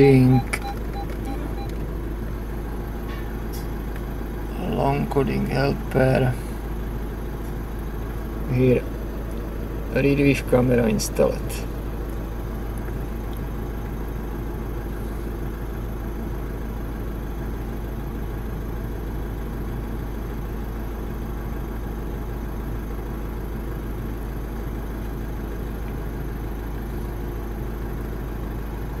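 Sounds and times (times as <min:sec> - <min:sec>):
vehicle engine drone: 0:00.0 - 0:29.0.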